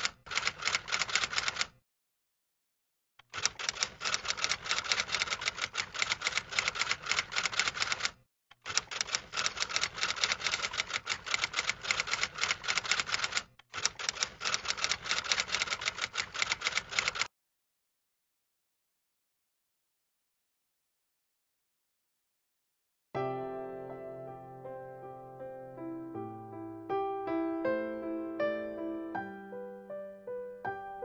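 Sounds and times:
typewriter keys clacking: 0.0s - 1.7s, 3.2s - 17.3s.

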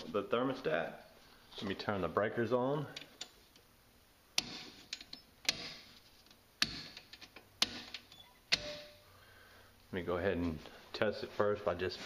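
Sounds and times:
circuit breakers clicking: 6.6s - 9.0s.

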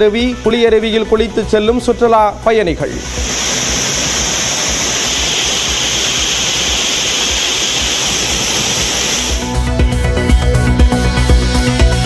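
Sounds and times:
waterfall rushing: 3.0s - 9.5s.

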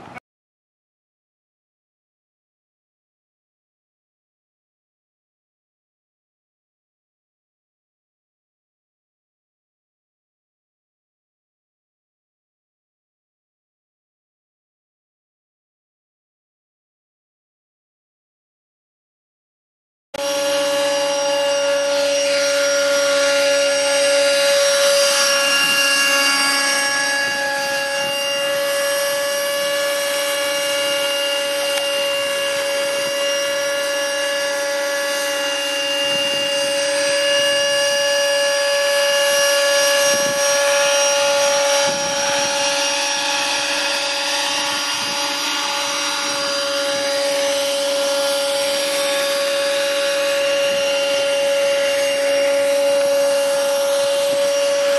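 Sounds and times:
model plane motors whining: 20.2s - 54.9s.

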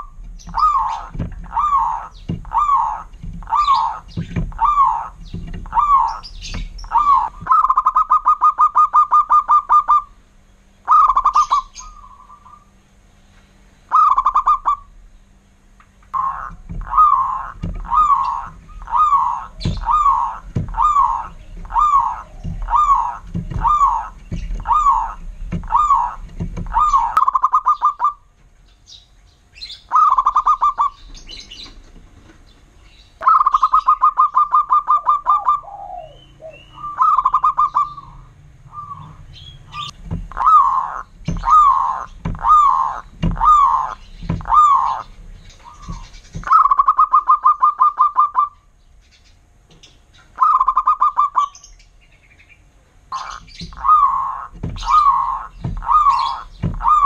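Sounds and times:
dove cooing trills: 0.0s - 12.9s, 13.8s - 15.4s, 16.1s - 48.8s, 50.1s - 51.9s, 52.6s - 57.0s
clipped coo notes: 16.2s - 28.2s, 33.2s - 45.0s.

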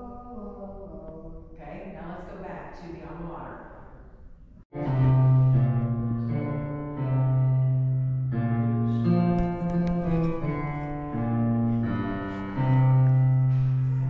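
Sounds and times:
slow piano music: 4.7s - 14.0s.

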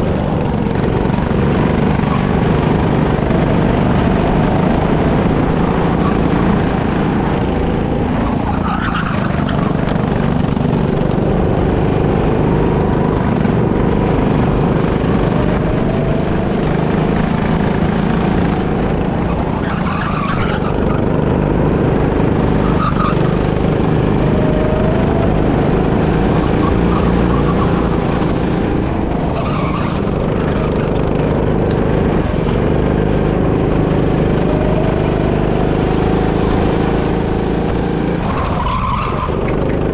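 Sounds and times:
go-kart engine racing: 0.0s - 39.9s
tyre squeals: 8.2s - 9.9s, 19.2s - 21.2s.

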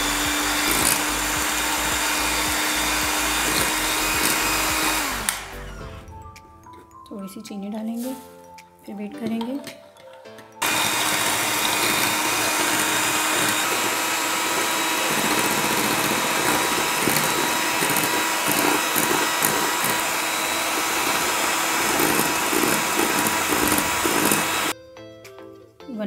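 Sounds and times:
electric hand mixer whirring: 0.0s - 5.6s, 10.6s - 24.7s.

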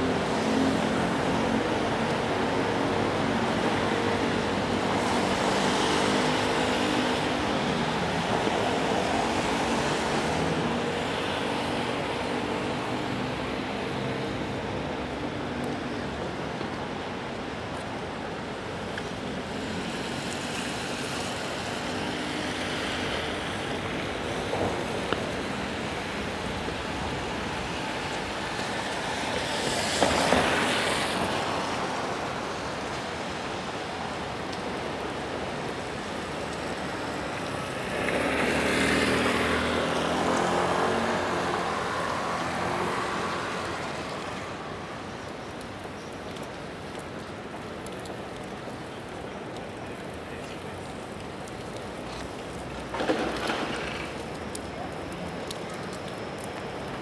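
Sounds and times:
tyres hissing on wet road: 0.0s - 57.0s
car engines passing: 34.8s - 46.5s.

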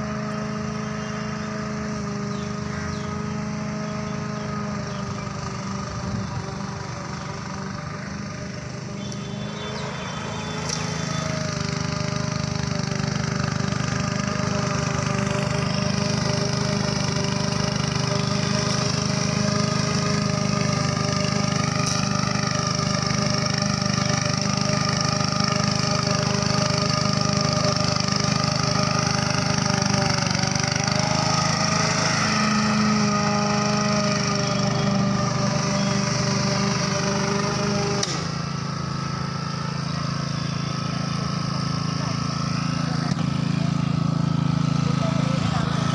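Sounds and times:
lawn mower engine running: 0.0s - 45.9s.

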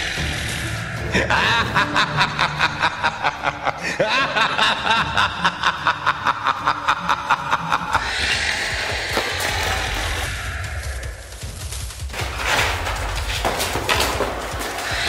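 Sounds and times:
person snickering: 1.0s - 8.2s.

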